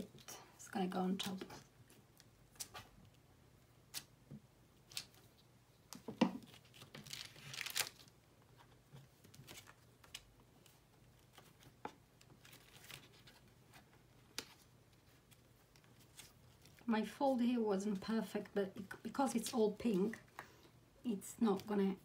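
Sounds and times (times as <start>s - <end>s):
paper rustling: 6.5s - 16.9s.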